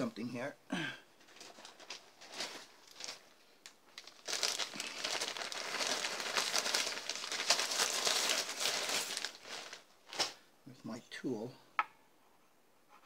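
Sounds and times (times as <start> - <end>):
plastic bag crinkling: 1.2 - 10.5.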